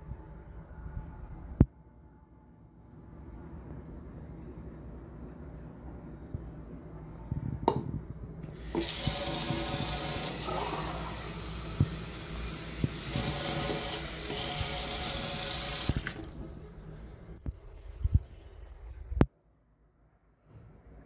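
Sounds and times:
tap water running into jug: 8.5s - 16.6s.

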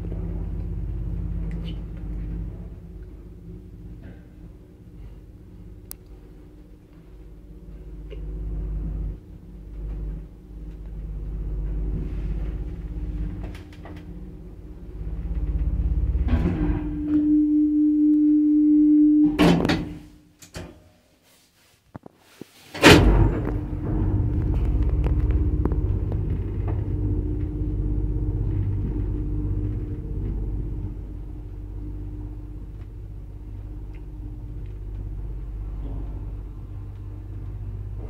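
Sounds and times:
lift car rumbling in shaft: 0.0s - 20.1s, 22.7s - 38.0s
lift doors clattering: 11.0s - 17.2s, 22.7s - 38.0s
lift clunk stopping: 15.0s - 17.4s, 22.8s - 35.1s.

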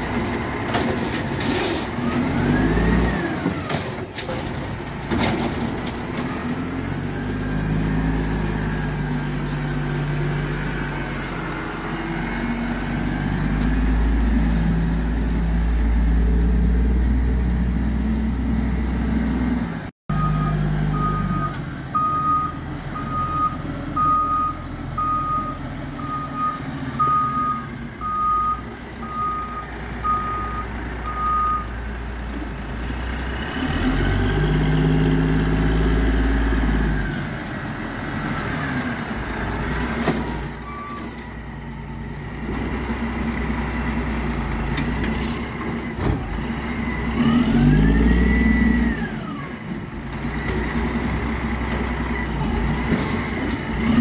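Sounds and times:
diesel engine revving: 0.0s - 3.8s, 4.7s - 54.0s
truck reversing alarm beeping: 6.2s - 31.9s.

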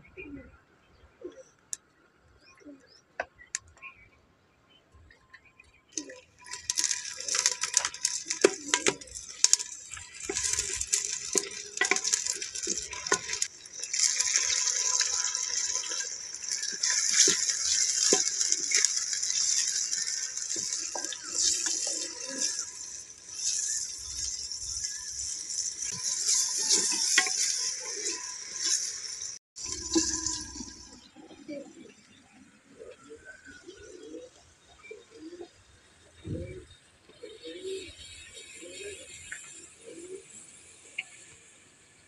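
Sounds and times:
greens sizzling in hot ghee: 6.0s - 32.2s, 37.2s - 41.9s.

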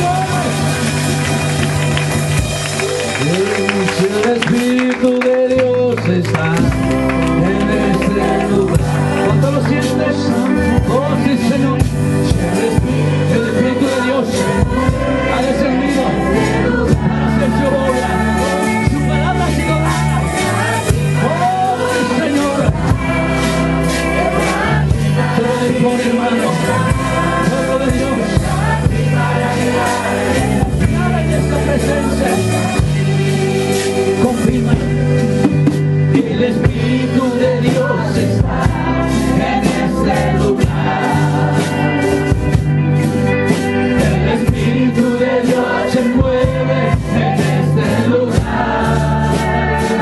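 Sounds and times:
electric bass guitar: 0.0s - 50.0s
women singing together: 12.3s - 34.1s, 36.6s - 42.2s, 44.1s - 50.0s.

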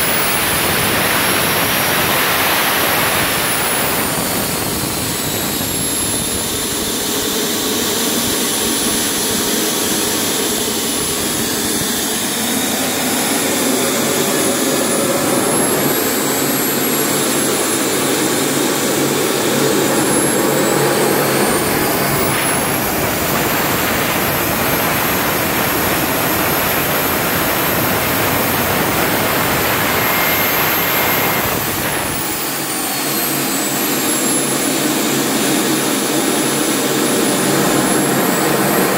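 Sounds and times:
model gas turbine whining: 0.0s - 38.9s.

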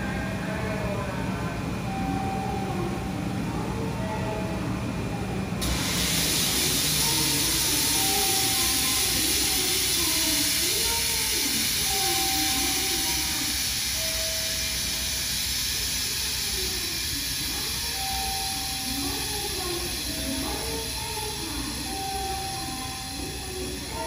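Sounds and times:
electric train hissing: 5.6s - 24.0s.

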